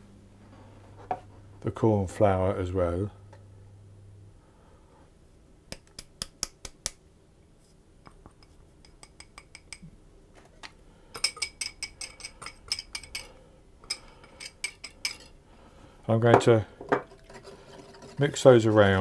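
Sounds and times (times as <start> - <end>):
metal utensil clinking on bowl: 11.2 - 15.3.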